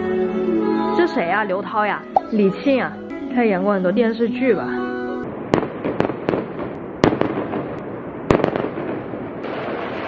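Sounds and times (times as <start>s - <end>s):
fireworks crackling and banging: 5.3s - 10.0s.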